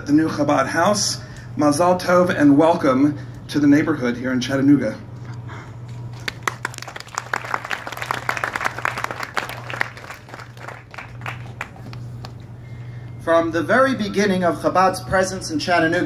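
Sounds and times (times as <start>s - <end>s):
steady low hum: 0.0s - 16.0s
audience applauding: 6.1s - 12.4s.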